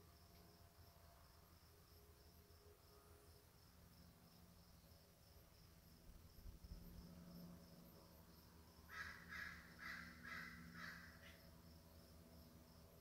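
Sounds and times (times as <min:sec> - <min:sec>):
jay rasping calls: 0:08.9 - 0:11.4.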